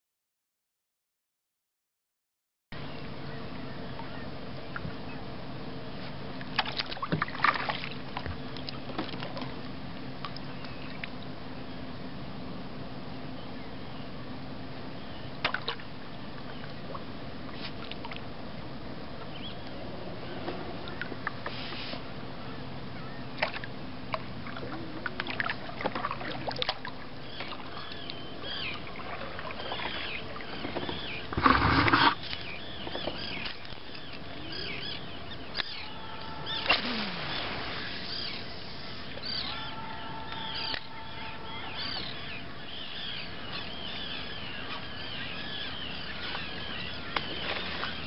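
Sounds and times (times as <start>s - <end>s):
water splashing: 6.5s - 8.3s, 23.4s - 32.5s, 35.6s - 42.0s
birds chirping: 19.2s - 21.3s, 27.0s - 48.0s.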